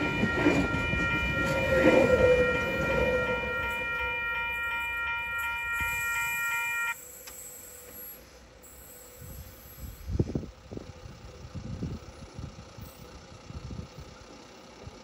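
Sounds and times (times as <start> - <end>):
train horn chord: 0.0 - 7.1
low rumble of train: 0.0 - 15.0.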